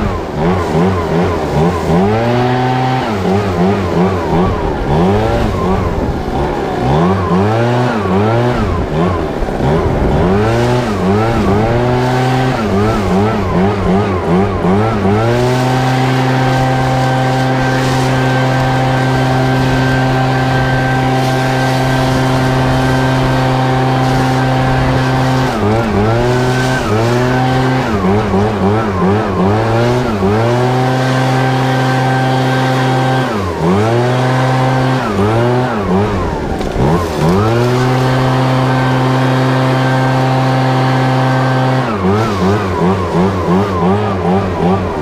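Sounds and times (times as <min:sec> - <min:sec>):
leaf blower engine at full throttle: 0:00.0 - 0:45.0.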